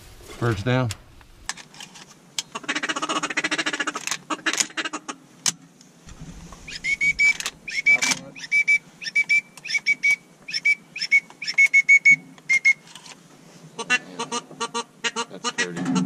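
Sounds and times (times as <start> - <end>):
duck rattling chatter: 6.7 - 11.8
duck whistle notes: 6.7 - 12.8.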